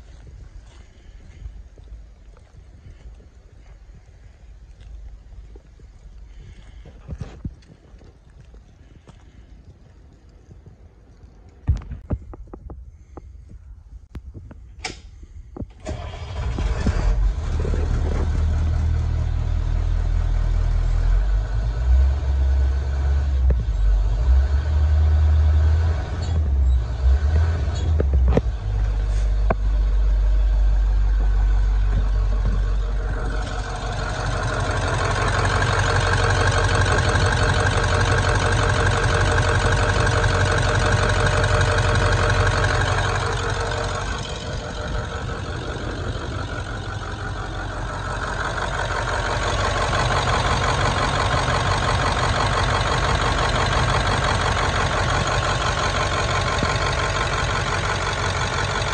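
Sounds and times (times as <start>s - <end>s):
high engine whine: 15.6s - 58.9s
diesel engine idling: 15.7s - 58.9s.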